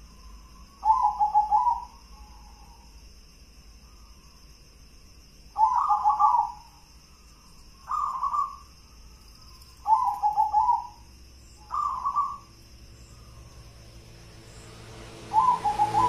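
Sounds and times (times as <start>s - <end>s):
dove cooing: 0.8s - 2.5s, 5.6s - 6.7s, 7.9s - 8.6s, 9.8s - 11.0s, 11.6s - 12.5s, 15.3s - 16.0s.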